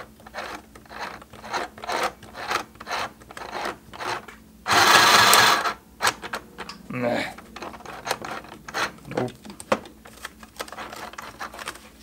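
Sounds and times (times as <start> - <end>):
sewing machine needle rasping: 0.3 - 5.7
loud harsh rasp: 1.0 - 5.8.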